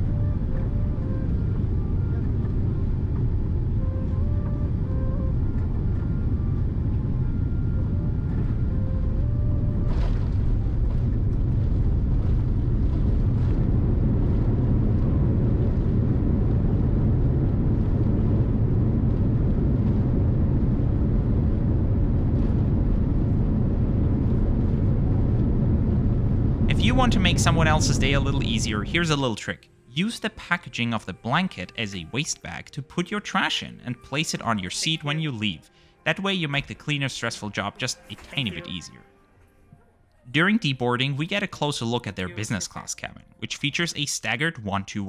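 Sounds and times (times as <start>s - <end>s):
aircraft cabin rumble: 0.0s - 29.4s.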